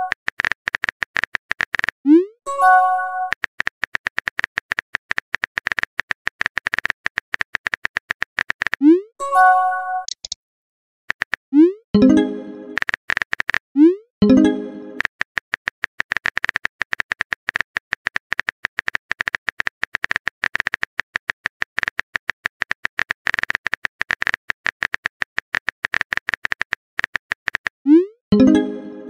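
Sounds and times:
keyboard typing clicks: 10.0s - 10.4s.

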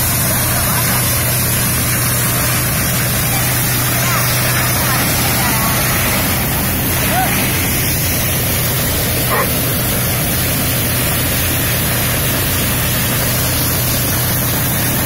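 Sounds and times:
thresher machine running: 0.0s - 15.0s.

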